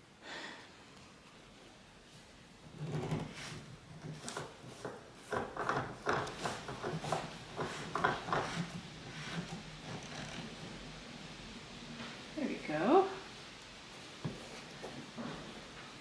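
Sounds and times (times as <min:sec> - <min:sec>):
wooden leg rubbing and creaking: 0:02.7 - 0:11.0.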